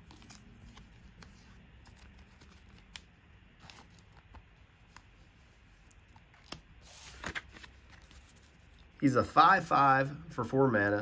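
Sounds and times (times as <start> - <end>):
cards handled with faint clicks: 0.0 - 5.1, 5.8 - 8.9.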